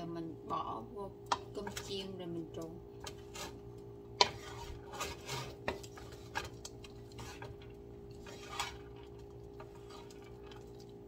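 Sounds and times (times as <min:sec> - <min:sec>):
spatula scraping pan: 0:03.0 - 0:11.0.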